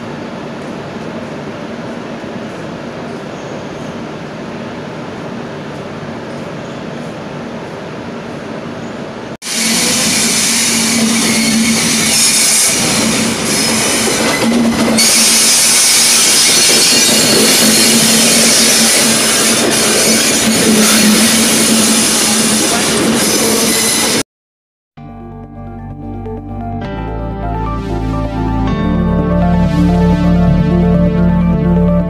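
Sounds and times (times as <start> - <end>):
locomotive hum: 0.0 - 24.2
train wheels rumbling and squealing: 0.7 - 24.2.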